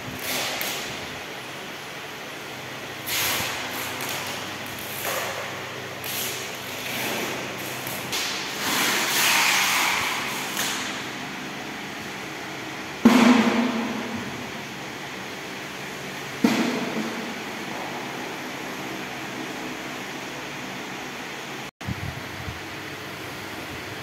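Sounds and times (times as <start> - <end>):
loud clunk: 13.0 - 14.4, 16.4 - 18.0.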